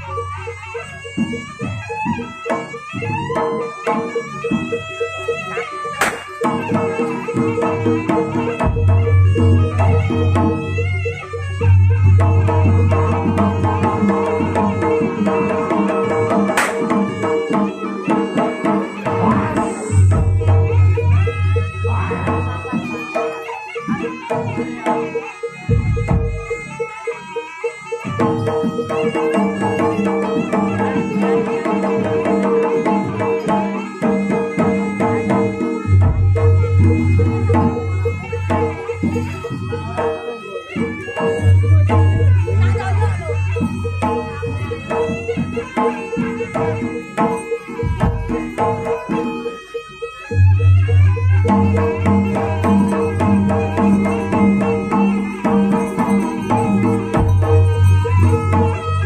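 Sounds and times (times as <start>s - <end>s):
held tones from pitched instruments: 0.0s - 59.0s
ringing pitched percussion: 0.0s - 59.0s
hand drums beating: 0.9s - 59.0s
fast hand drum strokes: 5.9s - 23.3s, 50.8s - 59.0s.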